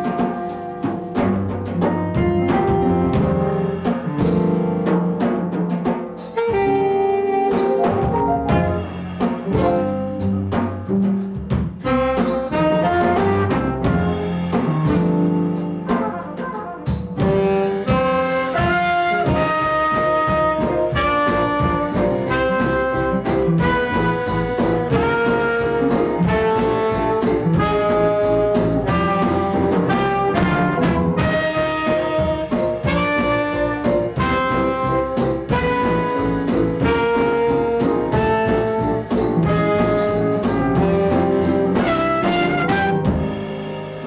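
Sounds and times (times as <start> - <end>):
saxophone: 0.0 - 4.9, 6.3 - 11.1, 11.8 - 43.5
drums: 0.0 - 44.0
trumpet: 0.0 - 44.0
upright bass: 0.0 - 44.0
keyboard: 6.2 - 10.7, 32.5 - 44.0.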